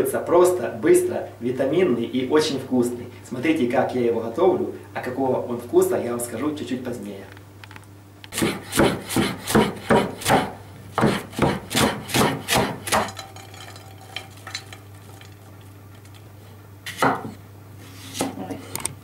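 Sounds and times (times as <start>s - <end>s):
knife chopping on wooden board: 8.3s - 13.1s, 16.9s - 17.4s.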